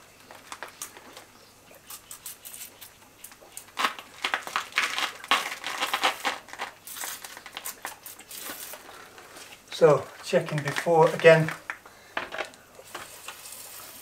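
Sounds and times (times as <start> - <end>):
pressure sprayer squirting water: 12.8 - 14.0.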